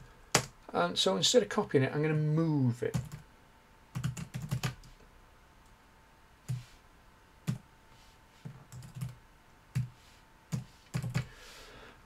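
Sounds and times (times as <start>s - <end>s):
computer keyboard typing: 2.9s - 3.2s, 3.9s - 4.9s, 8.7s - 9.9s, 10.5s - 11.3s.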